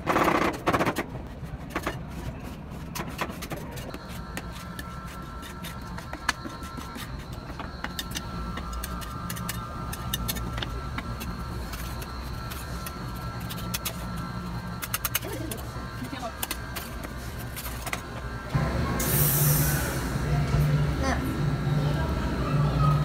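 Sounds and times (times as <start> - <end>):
steady low machine hum: 3.8 - 23.0.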